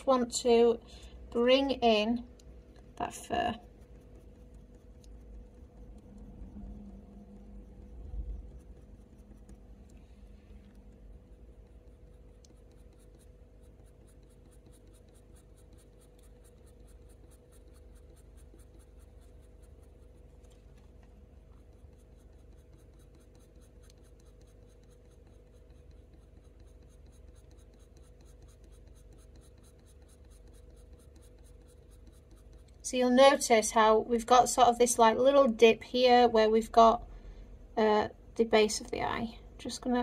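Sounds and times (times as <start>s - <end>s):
steady low hum: 0.0s - 40.0s
pencil scratching on paper: 3.0s - 33.6s.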